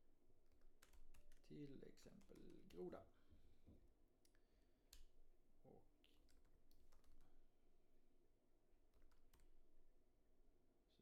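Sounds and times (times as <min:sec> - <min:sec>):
faint keyboard typing: 0:00.4 - 0:03.0, 0:06.1 - 0:07.5, 0:08.9 - 0:09.8.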